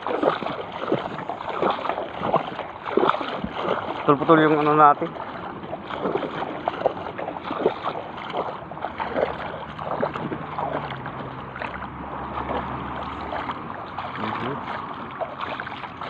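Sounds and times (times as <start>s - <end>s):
seawater splashing around wading legs: 0.0s - 16.0s.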